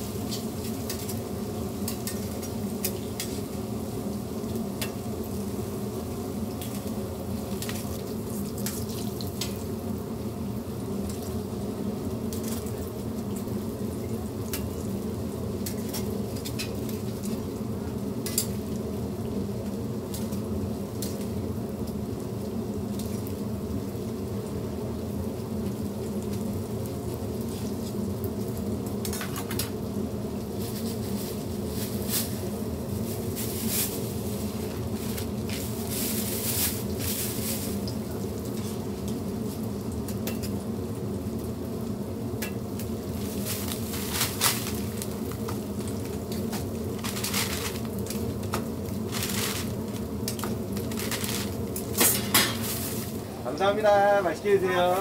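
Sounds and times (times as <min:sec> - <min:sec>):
pancakes sizzling in oil: 0:00.0 - 0:55.0
steady low hum: 0:00.0 - 0:55.0.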